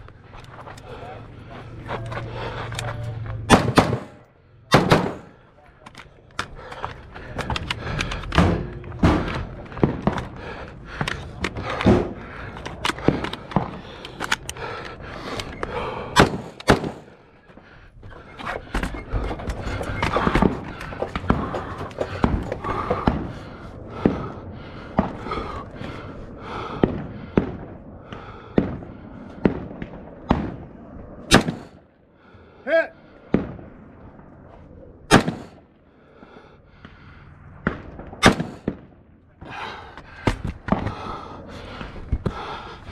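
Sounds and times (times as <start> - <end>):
rifle shots hitting steel: 3.5 - 5.4, 16.2 - 17.1, 31.3 - 31.8, 35.1 - 35.6, 38.2 - 38.8.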